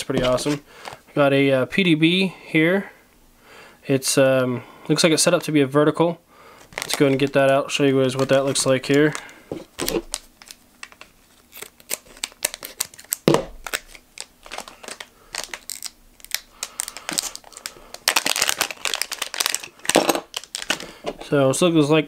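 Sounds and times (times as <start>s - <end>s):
plastic bag crinkling: 6.6s - 21.2s.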